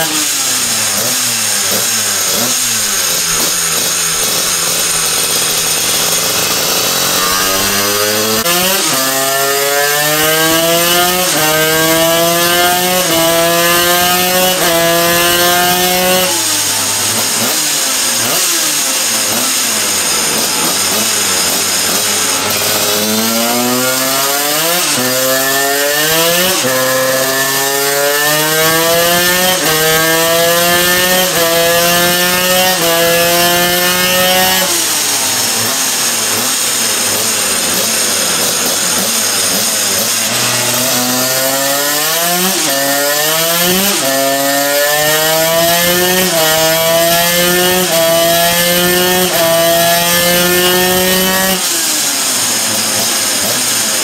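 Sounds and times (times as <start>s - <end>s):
two-stroke engine revving: 0.0s - 54.0s.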